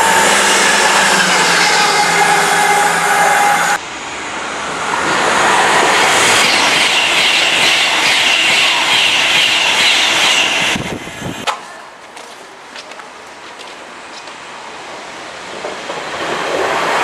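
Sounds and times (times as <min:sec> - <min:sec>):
train rushing past: 0:00.0 - 0:11.8
diesel locomotive engine: 0:00.0 - 0:17.0.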